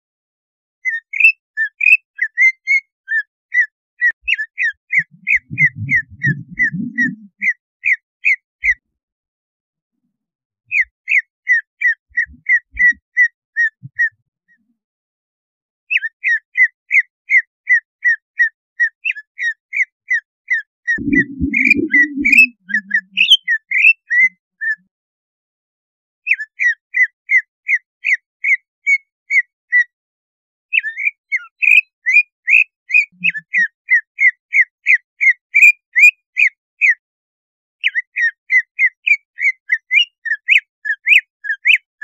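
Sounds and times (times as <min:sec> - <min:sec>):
bird whistling sharp notes: 0:04.3 - 0:08.0, 0:21.0 - 0:24.3.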